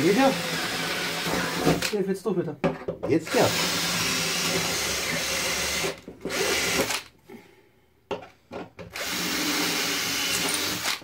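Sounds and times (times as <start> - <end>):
cordless drill boring steel: 0.0 - 1.9, 3.3 - 7.1, 8.9 - 11.0.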